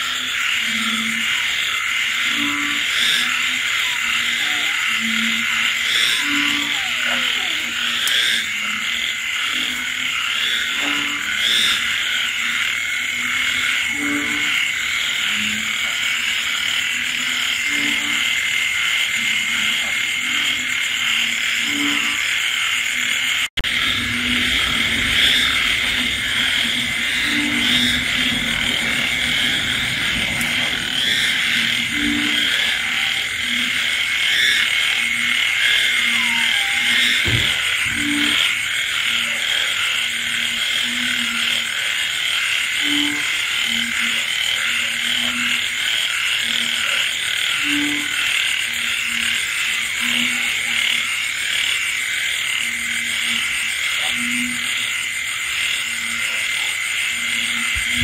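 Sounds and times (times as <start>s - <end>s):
insects and frogs trilling: 0.0s - 58.0s
low frog croaks: 0.0s - 58.0s
rain: 23.6s - 52.2s.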